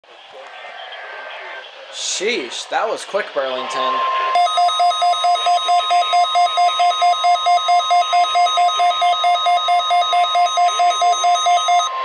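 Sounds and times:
steady warning alarm tone: 0:04.3 - 0:12.0
rapid beeping alarm: 0:04.4 - 0:12.0.

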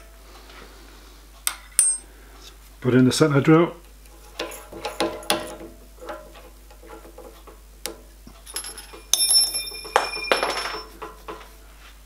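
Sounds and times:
allen key clattering on metal: 0:04.3 - 0:05.6, 0:08.3 - 0:11.4.

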